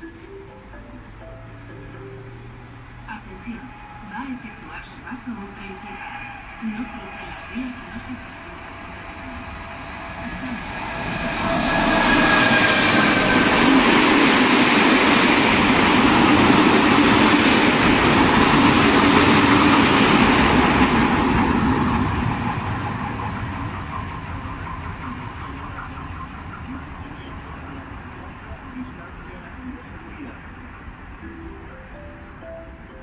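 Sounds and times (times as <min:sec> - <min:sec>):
freight train passing: 0:00.0 - 0:33.0
locomotive whine: 0:00.0 - 0:33.0
rhythmic wheel clatter: 0:05.7 - 0:31.1.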